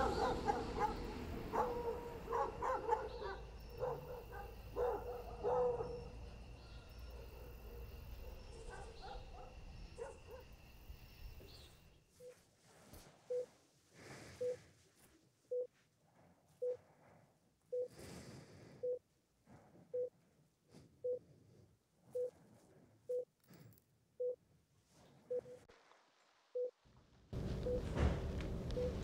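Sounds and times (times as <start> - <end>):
short electronic beeps: 17.7 - 17.9.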